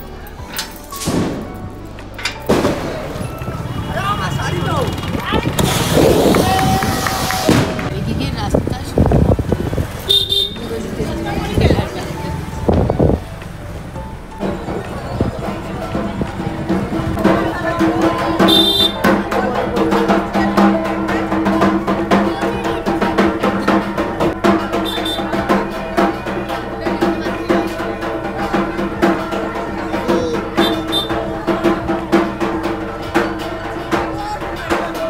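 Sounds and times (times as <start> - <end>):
drum beat: 14.4 - 35.0.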